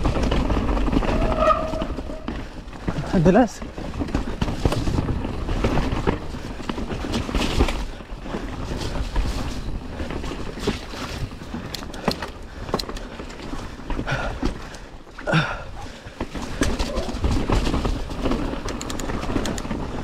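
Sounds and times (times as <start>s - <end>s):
bike knocks and rattles: 0.0s - 20.0s
bike tyre noise on dirt: 0.0s - 20.0s.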